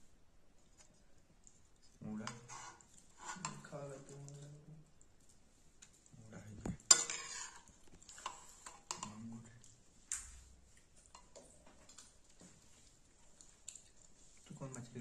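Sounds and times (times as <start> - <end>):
metal spoon scraping and clinking: 6.8 - 9.2.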